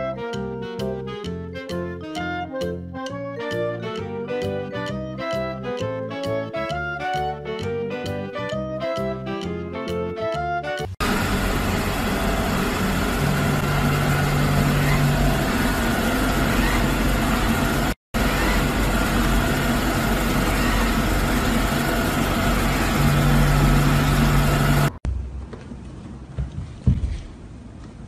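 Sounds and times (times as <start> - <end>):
robot vacuum cleaner whirring: 11.0 - 24.9.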